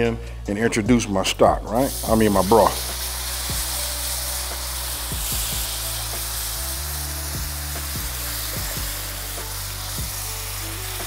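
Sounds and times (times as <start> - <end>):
broth sizzling in a pan: 1.8 - 11.0
music with bass and kick drum: 2.7 - 11.0.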